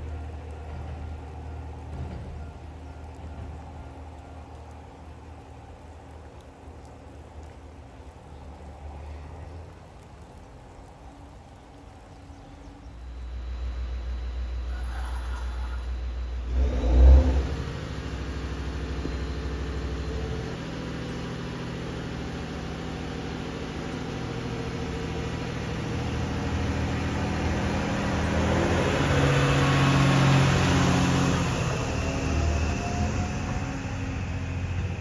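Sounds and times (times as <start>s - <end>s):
railcar diesel engine running: 0.0s - 8.2s, 9.8s - 35.0s
faint rising whine: 10.7s - 35.0s.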